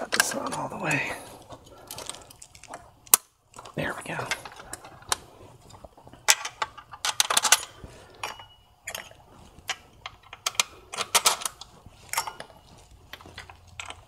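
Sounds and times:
metal bolts clinking: 0:06.2 - 0:14.0.

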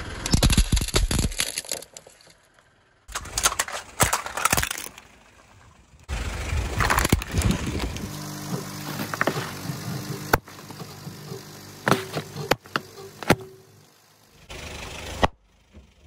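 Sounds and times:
car engine hum: 0:02.4 - 0:16.0
tyre crushing plastic cup: 0:06.8 - 0:09.7.

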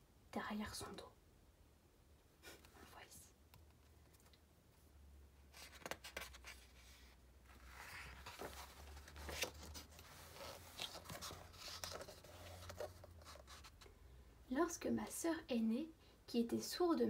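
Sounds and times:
book page rustling and scraping: 0:05.5 - 0:13.9.

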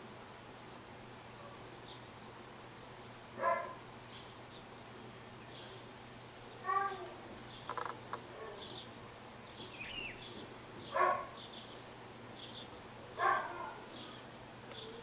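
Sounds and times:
faint high bird chirping: 0:06.5 - 0:15.0
loud bird calls: 0:06.5 - 0:15.0.

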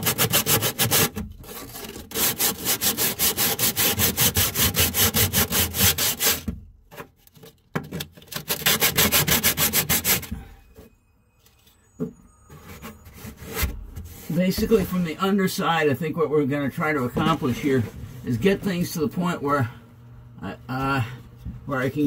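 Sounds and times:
sandpaper rubbing fiberglass: 0:00.0 - 0:06.5, 0:08.4 - 0:10.3.

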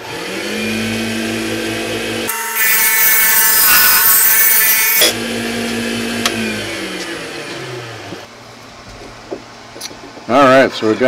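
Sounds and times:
lathe motor whine: 0:00.0 - 0:08.3.

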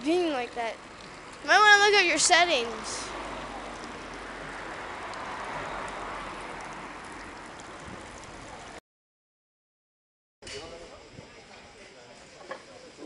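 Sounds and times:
fountain water splashing: 0:00.0 - 0:08.8.

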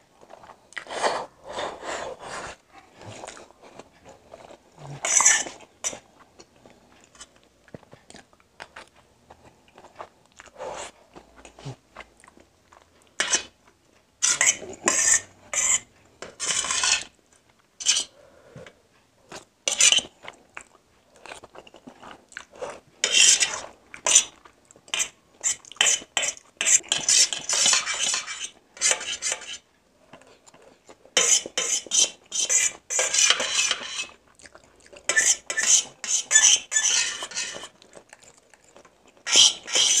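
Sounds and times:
spoon scraping metal plate: 0:05.0 - 0:06.0, 0:14.2 - 0:17.1, 0:17.8 - 0:18.1, 0:23.0 - 0:24.3, 0:24.9 - 0:29.6, 0:31.2 - 0:34.2, 0:35.1 - 0:37.8, 0:39.2 - 0:40.0
chewing noodles: 0:34.1 - 0:36.0, 0:37.6 - 0:39.3.

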